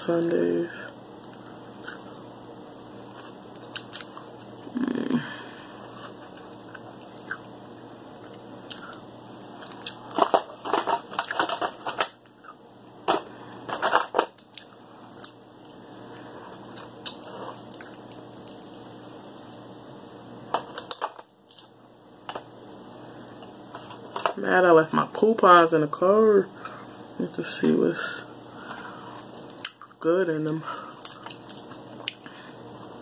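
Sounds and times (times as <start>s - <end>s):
crab shells cracking: 30.9s - 32.3s.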